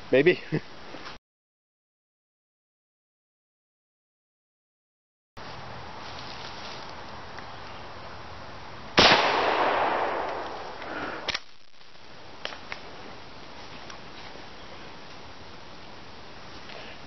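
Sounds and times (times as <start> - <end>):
shotgun shot with echo: 9.0 - 11.4.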